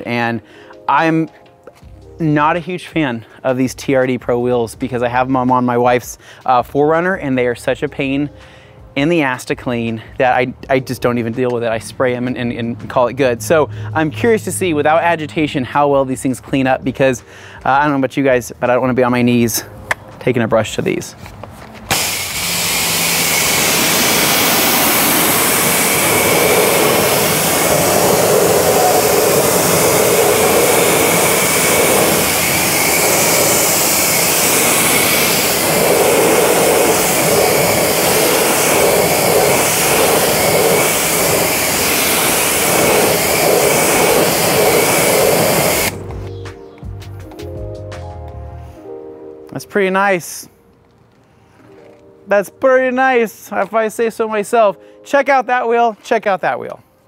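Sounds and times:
pressure washer spray hiss: 21.9s - 46.0s.

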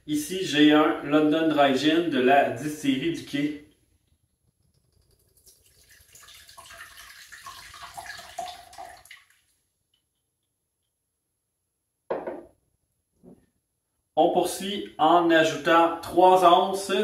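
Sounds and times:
gin trickling into a glass: 5.2s - 9.5s
short knock: 12.1s - 12.5s.

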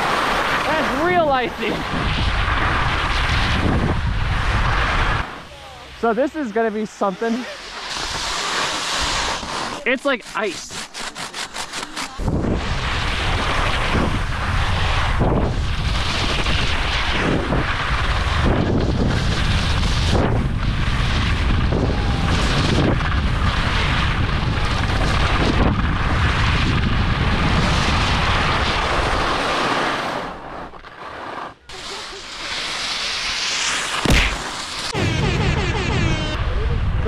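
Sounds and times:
skis scraping icy snow: 0.0s - 35.0s
wind buffeting microphone: 0.6s - 5.5s, 12.2s - 29.2s, 34.9s - 37.0s.

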